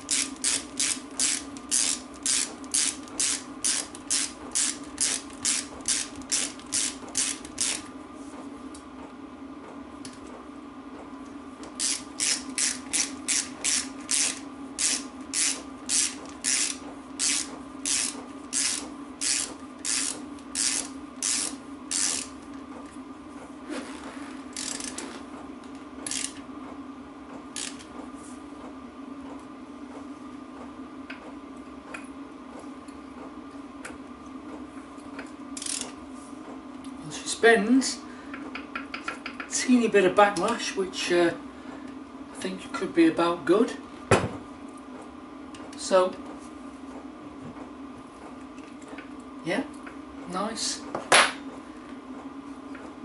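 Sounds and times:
socket ratchet clicking: 0.1 - 7.8, 11.8 - 22.3.

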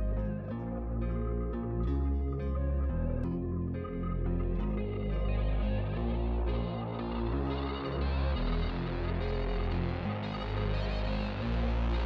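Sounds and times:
calm instrumental music: 0.0 - 12.0.

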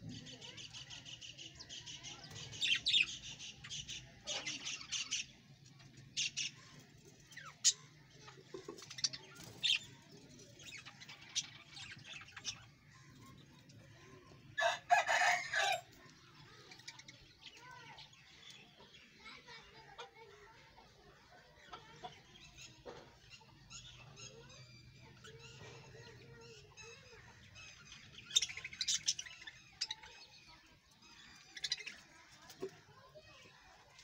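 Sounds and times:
budgerigars chattering and chirping: 22.4 - 32.2.

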